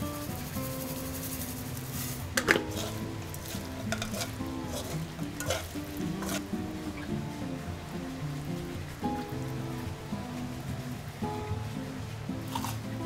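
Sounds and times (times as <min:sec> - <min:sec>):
utensils clacking against pan: 0:00.0 - 0:06.6
spoon scraping frying pan: 0:00.3 - 0:07.0, 0:12.4 - 0:12.8.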